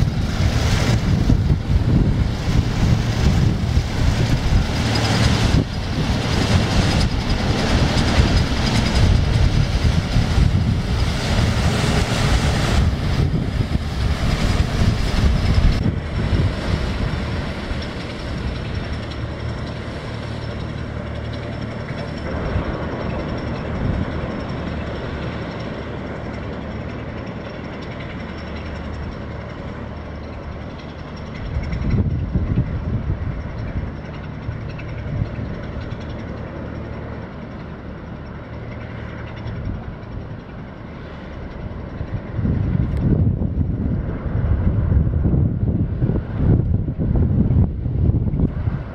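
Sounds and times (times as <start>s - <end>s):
high engine whine: 0.0s - 48.9s
propeller wash churning: 0.0s - 48.9s
ship diesel engine drone: 0.0s - 48.9s
wind buffeting microphone: 0.0s - 48.9s.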